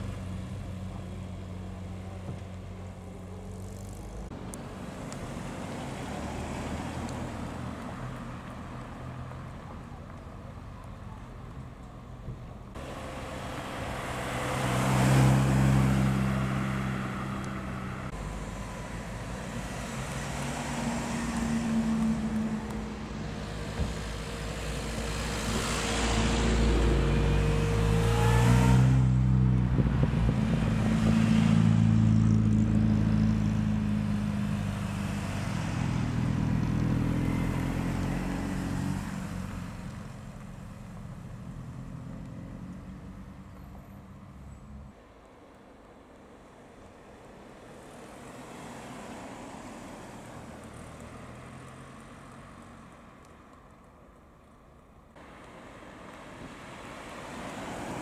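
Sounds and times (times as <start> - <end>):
cars driving past: 0.0 - 45.4, 46.4 - 58.0
car engine revving: 12.8 - 44.9.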